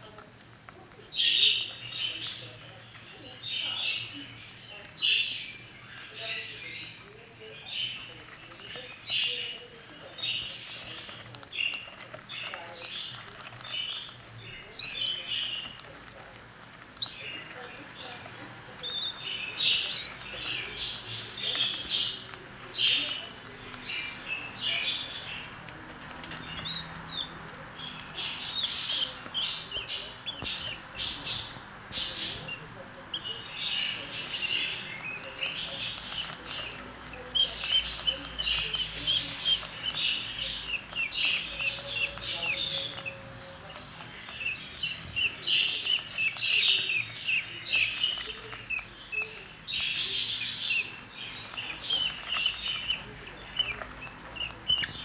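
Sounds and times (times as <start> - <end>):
budgerigar chicks chirping: 0.0 - 55.0.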